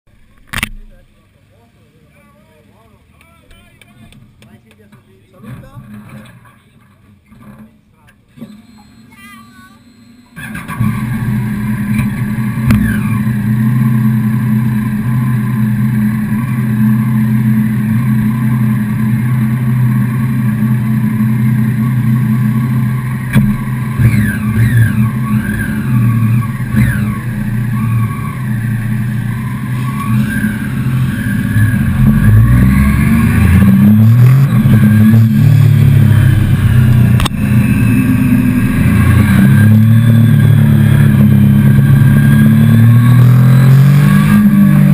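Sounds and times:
motorcycles revving and riding off: 3.9 - 44.9
motorcycle accelerating through gears: 10.4 - 44.9.

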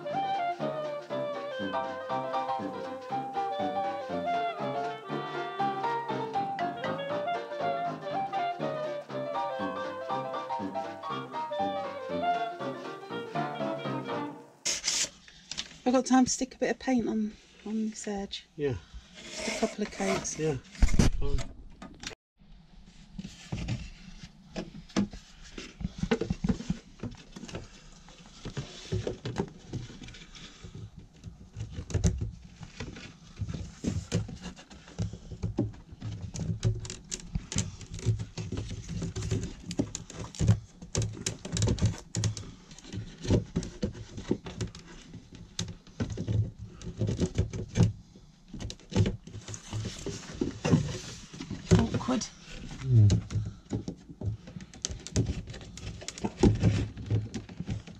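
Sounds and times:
wooden boards knocking and rubbing: 23.5 - 57.9.

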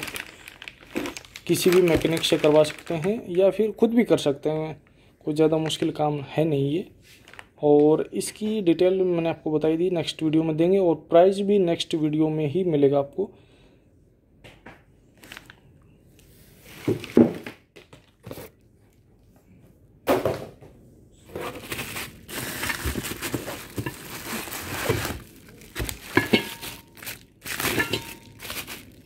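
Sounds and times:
plastic wrapping crinkling: 0.0 - 3.7, 7.1 - 7.6, 15.2 - 15.6, 21.4 - 29.0.

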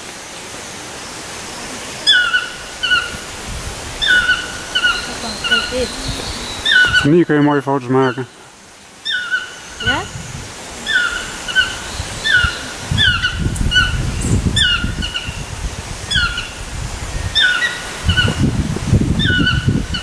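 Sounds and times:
toucan yelping calls: 2.0 - 3.4, 4.0 - 7.2, 9.0 - 16.6, 17.3 - 18.4, 19.2 - 20.0.

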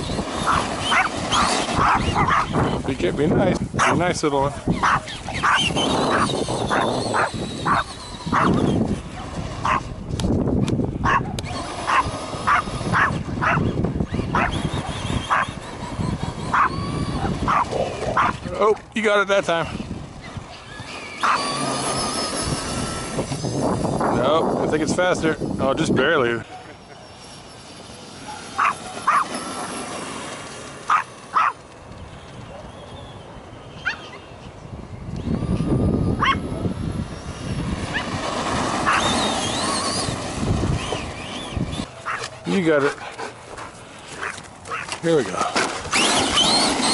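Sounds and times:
wind rumble on microphone: 0.0 - 26.5, 30.9 - 42.8
electric motor whining: 0.0 - 46.9
dog barking: 1.8 - 2.5, 4.8 - 6.2, 11.0 - 13.6, 28.3 - 29.2, 30.9 - 31.6, 42.0 - 42.3, 44.2 - 44.9
faint high whine: 20.4 - 31.4.

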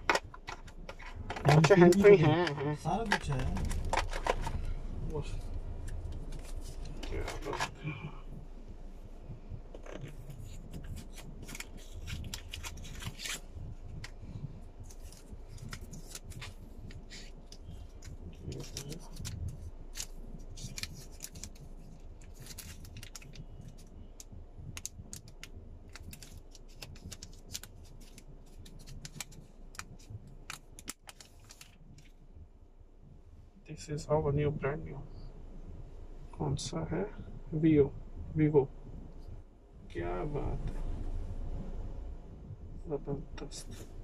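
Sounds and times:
plastic film crinkling: 0.0 - 4.7, 9.8 - 14.2, 14.8 - 32.1
low steady rumble: 0.0 - 44.0.

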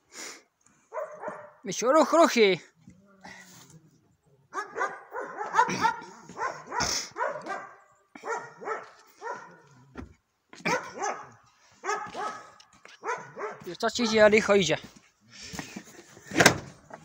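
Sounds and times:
dog barking: 0.9 - 1.6, 4.5 - 9.8, 10.6 - 14.3.

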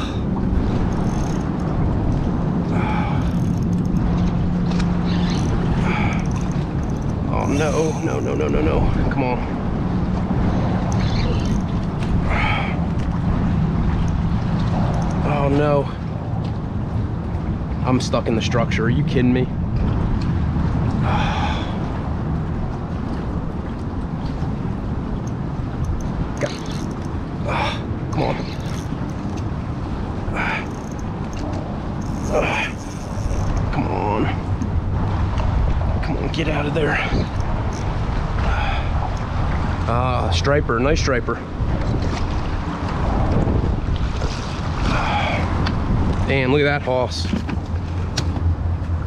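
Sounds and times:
water current moving around kayak: 0.0 - 49.0
wind noise on microphone: 19.5 - 40.0, 40.6 - 49.0.

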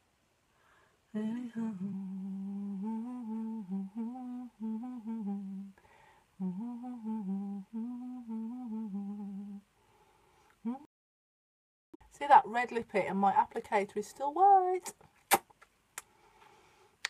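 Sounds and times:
woman humming: 1.2 - 5.8, 6.4 - 9.6, 10.6 - 10.9.

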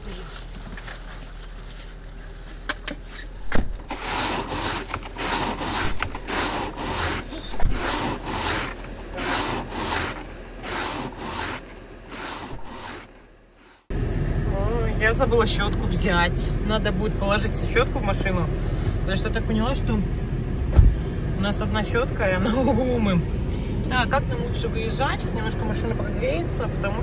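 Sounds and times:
scraping snow off windshield: 0.0 - 13.9
car engine idling: 0.0 - 27.0.

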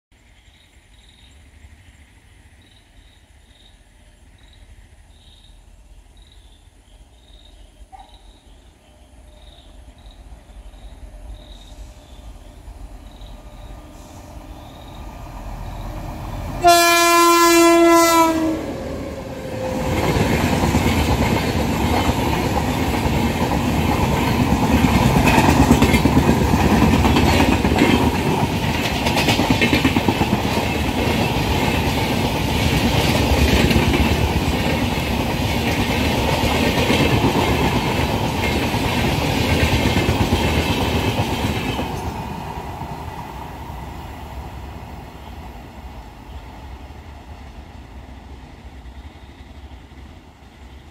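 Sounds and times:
train passing with rail rumble: 0.2 - 50.9
locomotive horn: 16.6 - 19.2.

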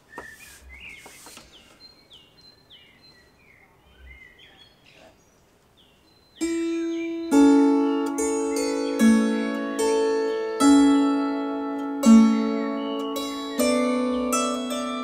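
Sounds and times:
songbird chirping: 0.0 - 15.0
lap harp plucked notes: 6.4 - 15.0.

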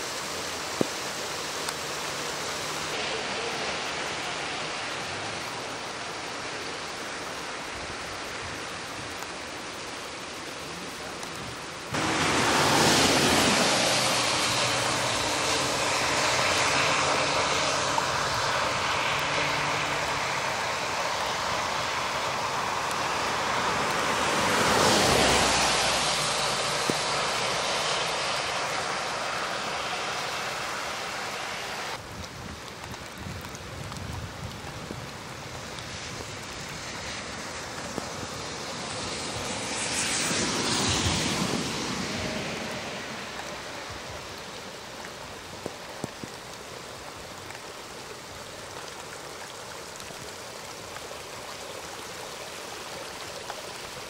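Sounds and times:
rain and wet-road traffic hiss: 0.0 - 54.0
passing vehicle tyre hiss: 11.9 - 32.0, 35.9 - 45.4.

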